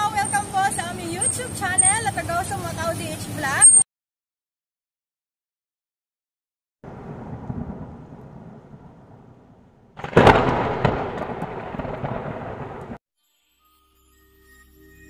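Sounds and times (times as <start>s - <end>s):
sharp thunder crack: 6.9s - 13.0s
thunder rumbling: 6.9s - 13.0s.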